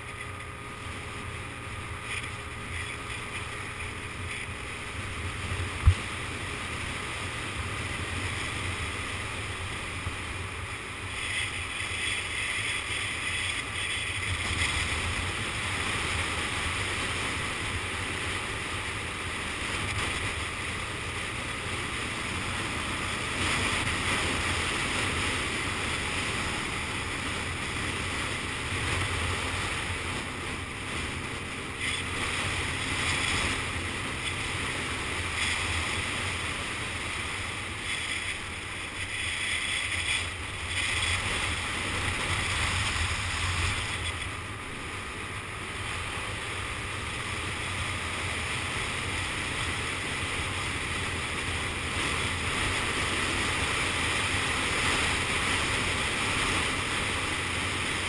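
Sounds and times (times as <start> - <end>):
road noise: 0.0 - 58.0
scooter engine: 0.0 - 58.0.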